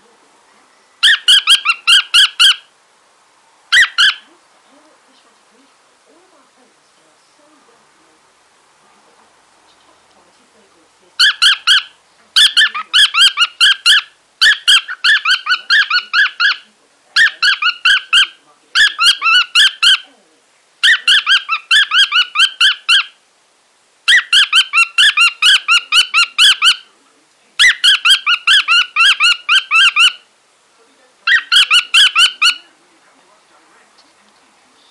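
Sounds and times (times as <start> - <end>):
cockatiel chirping: 1.0 - 2.7, 3.7 - 4.3, 11.2 - 20.1, 20.8 - 23.2, 24.1 - 26.9, 27.6 - 30.3, 31.2 - 32.7.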